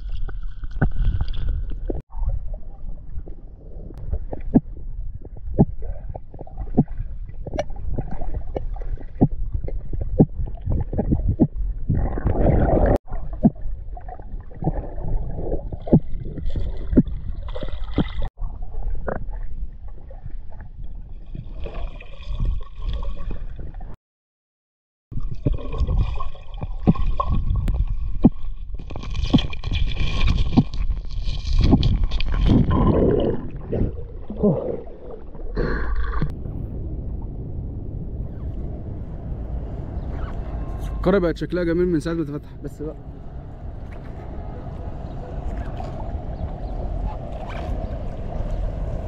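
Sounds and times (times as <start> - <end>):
muffled underwater rumble: 0.0 - 21.7, 31.5 - 49.0
small underwater clicks and knocks: 26.6 - 32.6
water gurgling rush: 38.2 - 49.0.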